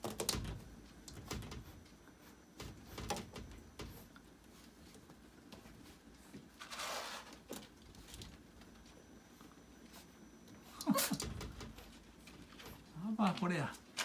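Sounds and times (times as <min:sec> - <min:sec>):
curtain rustling: 0:06.0 - 0:08.5.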